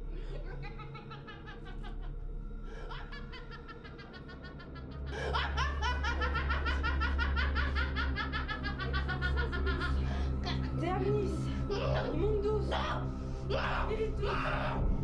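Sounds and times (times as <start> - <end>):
deep low layer: 0.0 - 15.0
woman's staccato demonic laugh: 0.2 - 2.1, 2.8 - 10.8.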